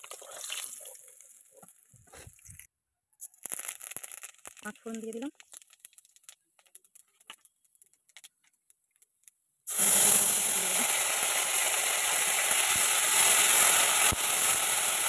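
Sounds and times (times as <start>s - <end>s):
paste sizzling in hot oil: 0.0s - 1.7s, 3.4s - 6.3s, 9.7s - 15.0s.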